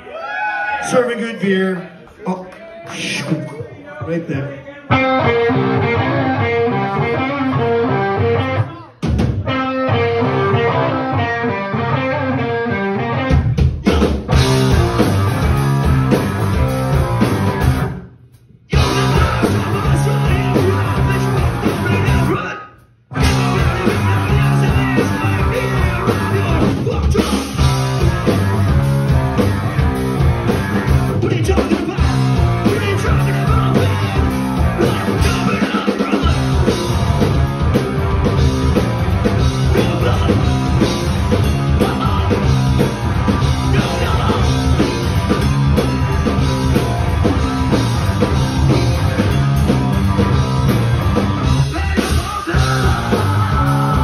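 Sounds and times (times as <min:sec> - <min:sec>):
electric guitars: 0:04.9 - 0:18.0, 0:18.7 - 0:22.4, 0:23.1 - 0:54.0
drum kit: 0:09.0 - 0:10.7, 0:13.2 - 0:54.0.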